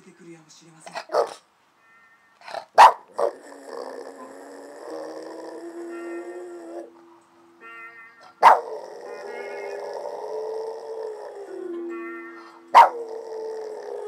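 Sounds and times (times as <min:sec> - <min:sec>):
dog barking: 0:01.0 - 0:01.4, 0:02.5 - 0:03.3, 0:08.4 - 0:08.8, 0:12.7 - 0:13.1
dog howling: 0:03.1 - 0:07.1, 0:08.2 - 0:14.0.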